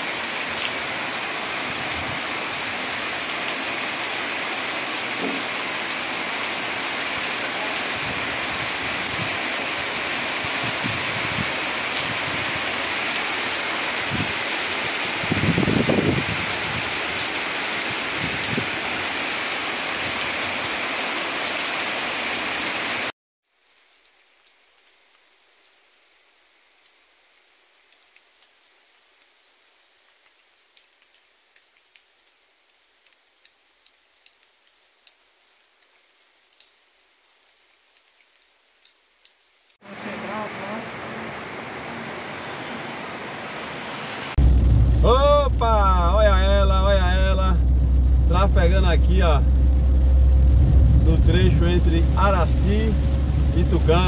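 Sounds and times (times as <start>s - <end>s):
heavy rain pouring: 0.0s - 54.0s
small ticks: 26.6s - 28.7s, 30.1s - 36.8s, 37.7s - 39.4s.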